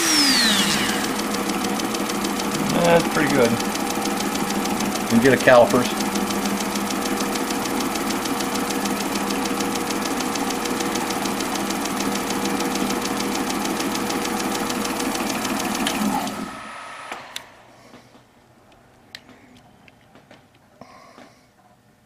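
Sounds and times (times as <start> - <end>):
lathe and grinder running: 0.0 - 17.0
motors winding down: 0.0 - 17.5
fast even ticking: 0.1 - 15.9.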